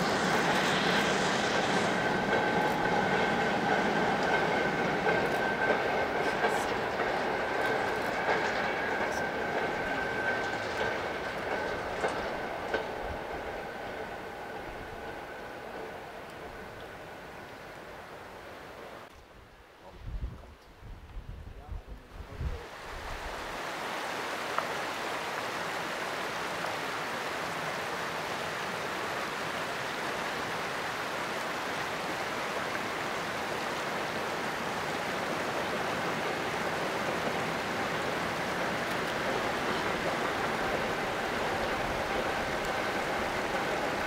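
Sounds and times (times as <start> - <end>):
train wheels rumbling on rails: 0.0 - 17.9, 31.7 - 44.0.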